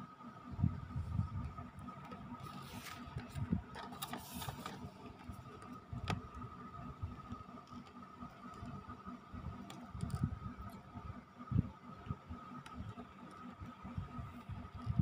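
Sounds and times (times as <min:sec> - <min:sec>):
faint steady whine: 0:00.0 - 0:15.0
cardboard box rubbing and scraping: 0:02.4 - 0:05.4.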